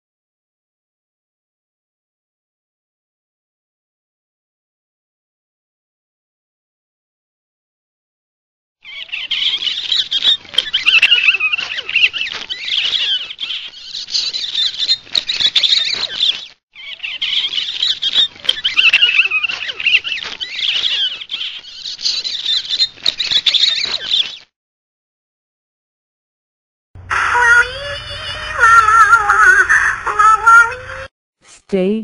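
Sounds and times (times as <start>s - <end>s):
high-pitched squeaky chattering: 8.9s - 24.3s.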